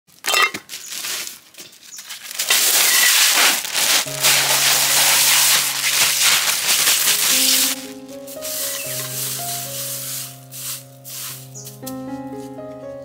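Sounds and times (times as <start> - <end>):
crushed ice pouring into a pot: 2.3 - 11.4
background music: 4.1 - 13.0.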